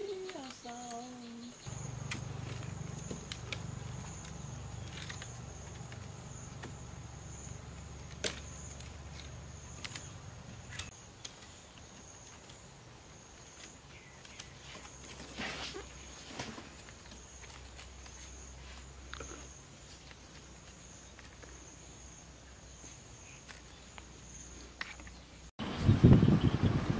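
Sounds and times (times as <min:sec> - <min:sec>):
sticks and wire clicking: 0:00.0 - 0:06.8, 0:07.4 - 0:12.6
low hum: 0:01.6 - 0:10.9.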